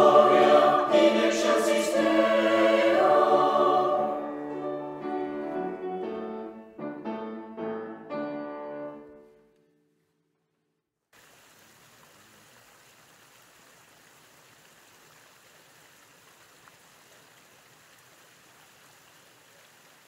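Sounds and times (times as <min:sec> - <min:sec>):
water running over rock: 0:11.2 - 0:20.0.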